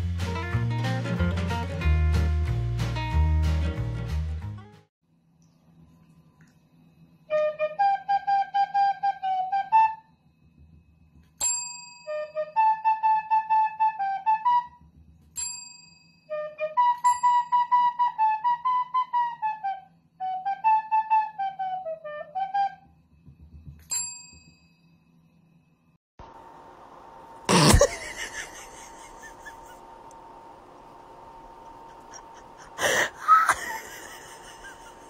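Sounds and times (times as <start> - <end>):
small flute melody: 7.3 - 10.1, 12.1 - 14.9, 16.3 - 23.0
loud breathy burst: 32.0 - 33.4.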